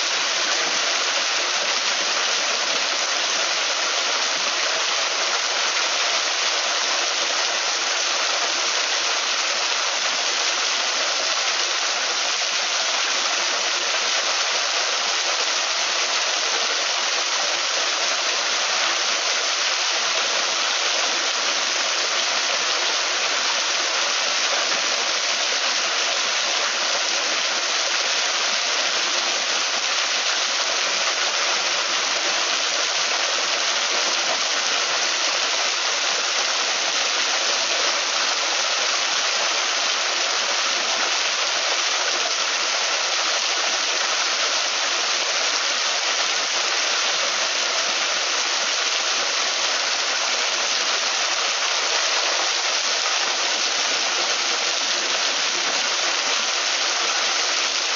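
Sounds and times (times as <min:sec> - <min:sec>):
waterfall splashing onto rocks: 0:00.0 - 0:57.9.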